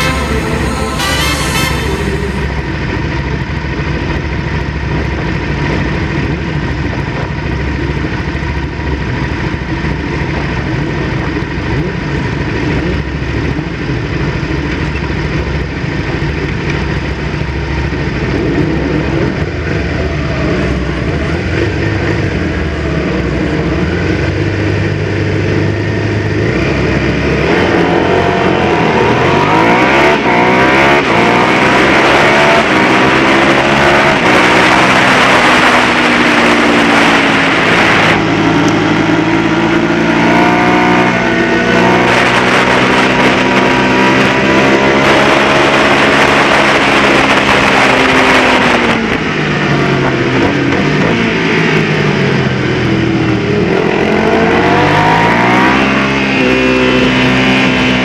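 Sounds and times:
motorcycle engines idling and revving: 0:00.0 - 0:58.0
motorcycles accelerating away: 0:18.2 - 0:58.0.

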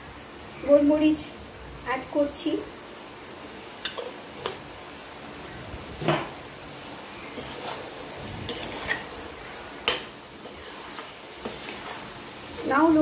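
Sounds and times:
faint sizzle: 0:00.0 - 0:13.0
metal spatula scraping pan: 0:07.3 - 0:13.0.

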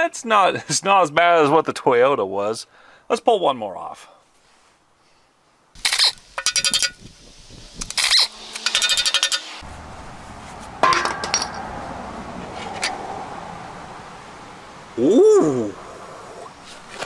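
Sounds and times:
quick metallic clicking: 0:07.8 - 0:09.6
ringing metal clinks: 0:10.8 - 0:11.8.

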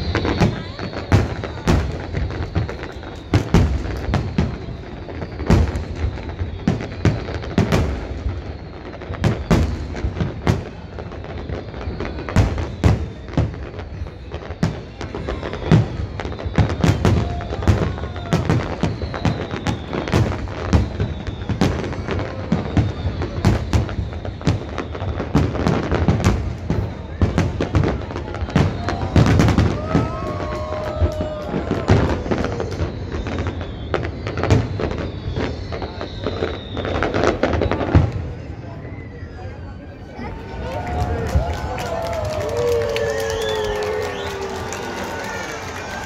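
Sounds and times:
fireworks crackle: 0:00.0 - 0:46.0.

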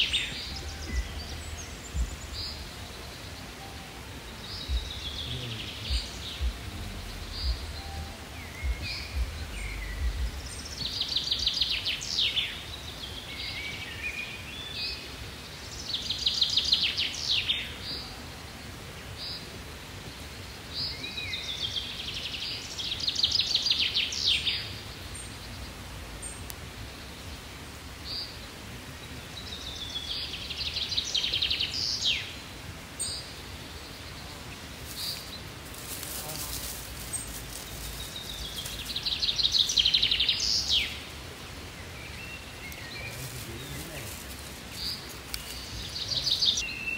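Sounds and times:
songbird trilling: 0:00.0 - 0:12.6
low outdoor rumble: 0:00.0 - 0:12.8.

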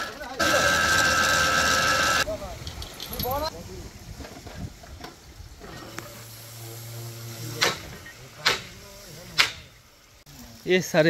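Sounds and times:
faint hiss: 0:02.2 - 0:11.0.

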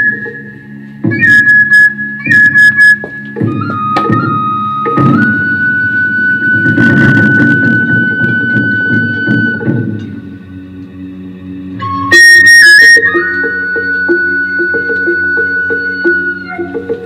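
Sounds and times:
dense low accompaniment: 0:03.4 - 0:12.2
high wind instrument note: 0:11.8 - 0:17.0.

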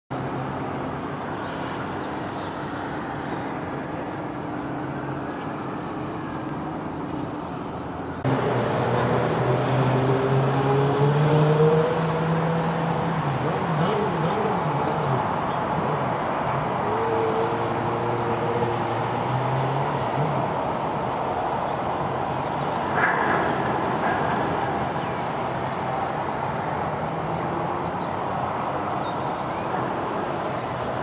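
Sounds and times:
road traffic: 0:00.1 - 0:31.0
engine hum with rising tone: 0:08.0 - 0:28.7.

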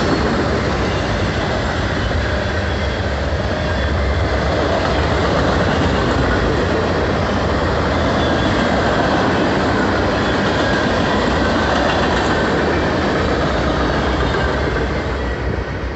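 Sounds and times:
train wheels rumbling on rails: 0:00.0 - 0:15.9.

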